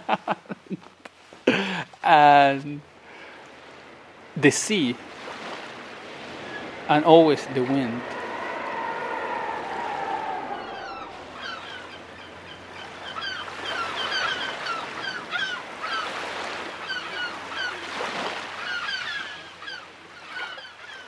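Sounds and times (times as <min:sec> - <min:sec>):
wind and sea rushing: 0:00.0 - 0:21.0
gulls calling: 0:04.8 - 0:21.0.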